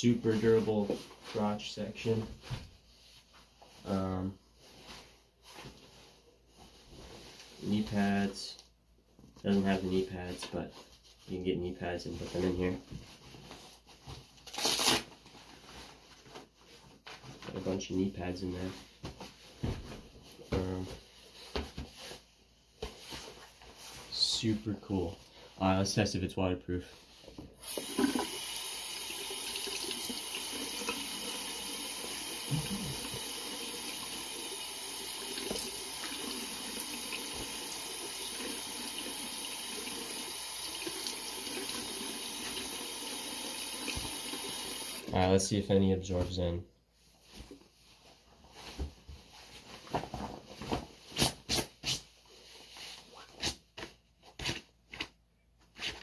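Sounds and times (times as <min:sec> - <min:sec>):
water tap running into sink: 0:27.6 - 0:45.0.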